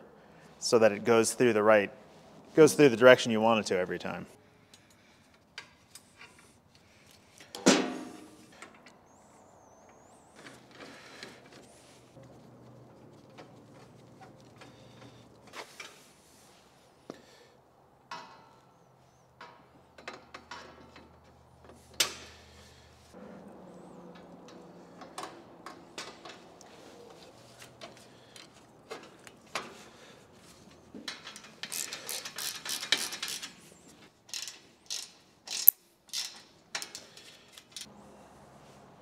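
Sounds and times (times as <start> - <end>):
ratchet wrench clicking: 31.3 - 33.6, 34.3 - 37.0.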